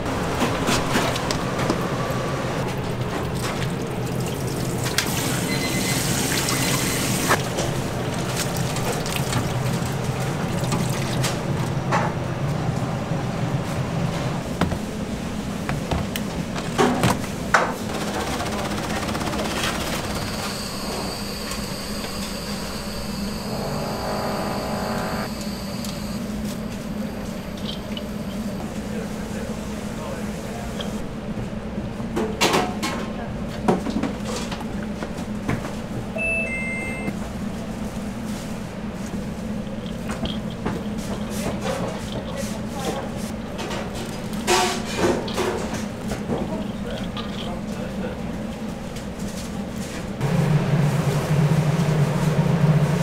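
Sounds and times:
kitchen machinery hum: 0.0s - 53.0s
steady low hum: 20.4s - 31.8s
brief pitched tone: 36.2s - 37.2s.

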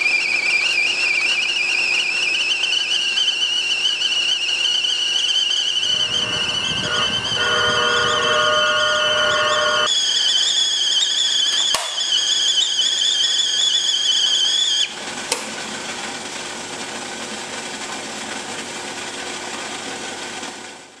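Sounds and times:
kettle whistling: 0.0s - 19.3s
lower steady squeal: 0.0s - 20.0s
steam hissing from spout: 9.9s - 21.0s
whistle cap click: 10.4s - 15.5s.

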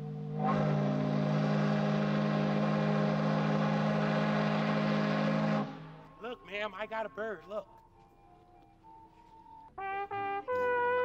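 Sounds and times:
steam hissing: 0.0s - 5.7s
steam whistle blast: 0.0s - 6.1s.

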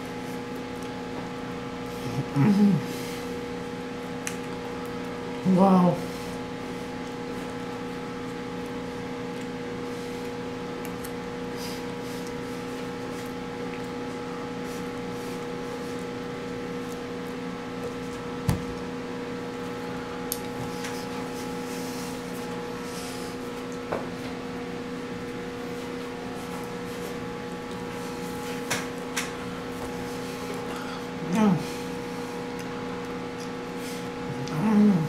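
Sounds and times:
steady low hum: 0.0s - 35.0s
eating sounds: 1.8s - 18.9s, 27.6s - 35.0s.

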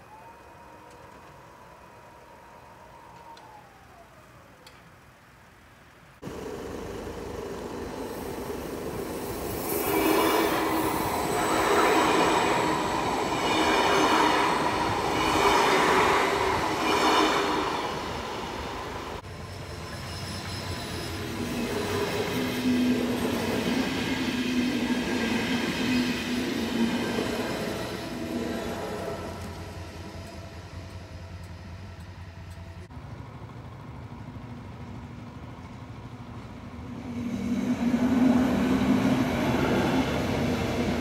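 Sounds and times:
train passing: 6.0s - 41.0s.

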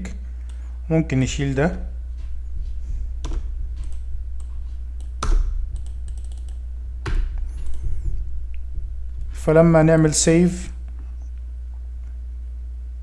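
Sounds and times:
steady low hum: 0.0s - 13.0s
keyboard and mouse clicks: 3.2s - 8.0s.

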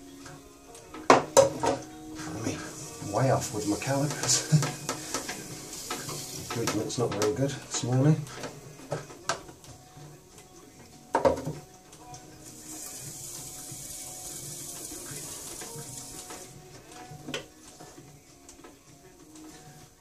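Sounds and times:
wet clay on potter's wheel: 2.2s - 9.1s, 12.4s - 18.0s.

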